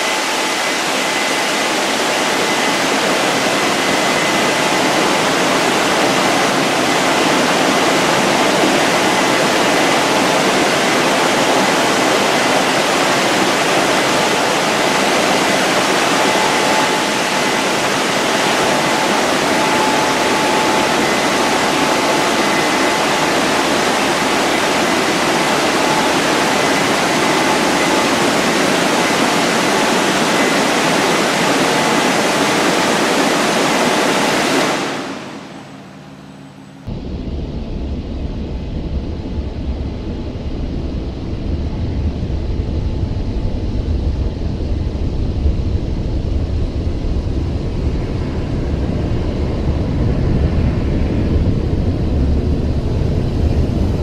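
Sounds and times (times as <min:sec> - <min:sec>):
car-wash dryer blowers rushing: 0:00.0 - 0:54.0
high whine of fans: 0:00.0 - 0:54.0.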